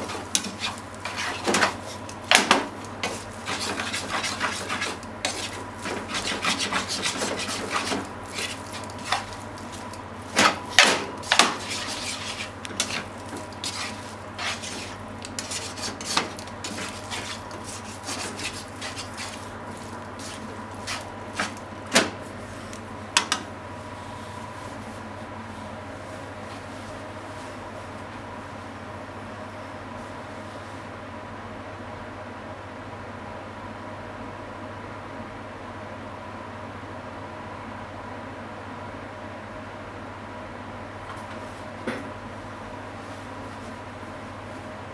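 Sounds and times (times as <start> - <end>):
tongs scraping in frying pan: 0.0 - 21.6.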